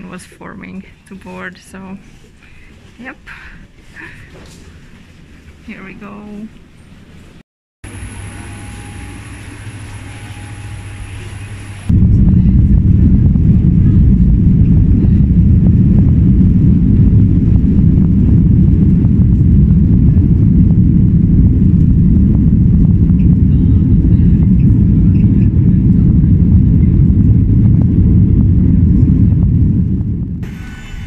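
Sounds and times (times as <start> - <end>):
jet engines rumbling in cabin: 7.8 - 31.0.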